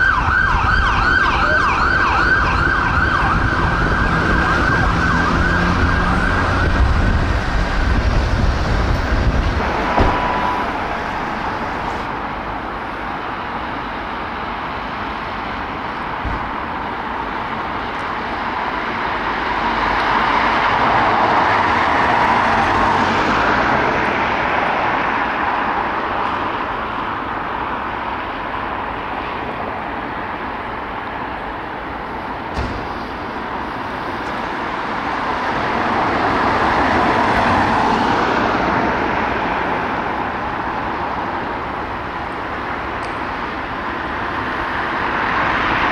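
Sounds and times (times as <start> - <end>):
ambulance siren wailing: 0.0 - 12.0
street traffic noise: 0.0 - 45.9
vehicle passing: 0.3 - 12.1
vehicle engine pulling away: 3.0 - 12.0.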